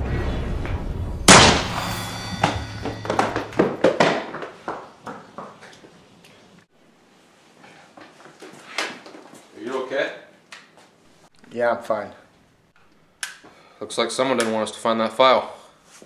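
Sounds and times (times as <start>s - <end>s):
loud sudden bang: 0.0s - 3.9s
sharp knocks and clatters: 1.3s - 5.6s.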